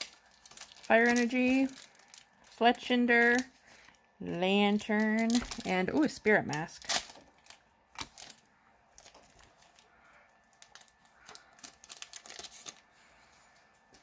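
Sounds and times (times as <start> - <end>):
foil pack crinkling: 0.0 - 4.0, 4.7 - 13.3.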